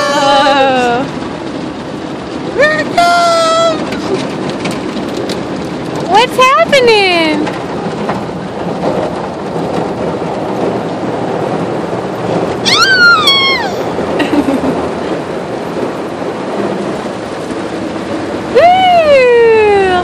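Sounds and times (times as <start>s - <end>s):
car wash water and machinery: 0.0s - 20.0s
toddler squealing: 12.6s - 14.0s.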